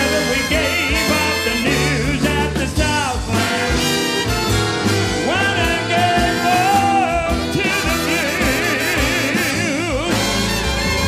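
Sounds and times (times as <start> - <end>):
swing band playing: 0.0 - 11.0
person singing: 5.2 - 10.5.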